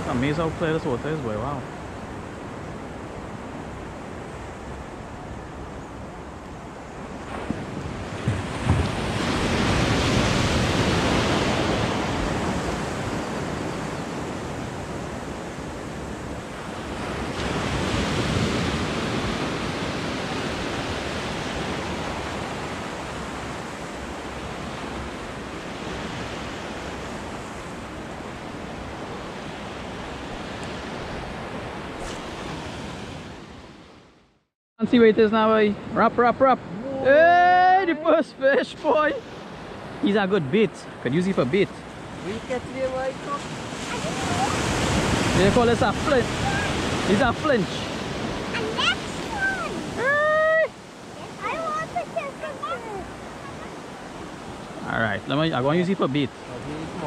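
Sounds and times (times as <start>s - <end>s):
small waves breaking on sand: 0.0s - 34.2s, 34.9s - 57.0s
wind on microphone: 1.8s - 34.0s, 43.2s - 54.9s.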